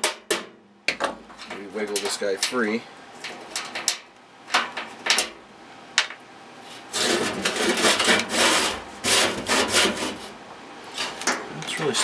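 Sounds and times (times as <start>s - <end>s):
metal scraping and rattling: 6.9s - 10.3s.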